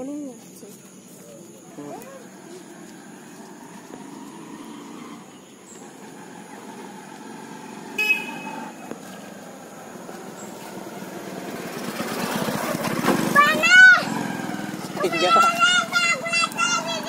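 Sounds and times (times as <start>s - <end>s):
faint outdoor background noise: 0.0s - 17.0s
vehicle horn toot: 7.9s - 8.9s.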